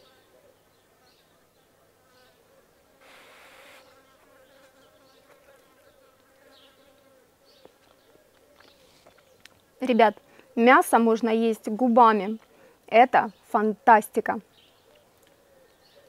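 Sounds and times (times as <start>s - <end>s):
short rustling hiss: 3.0s - 4.0s
flying insect buzzing: 3.0s - 7.0s.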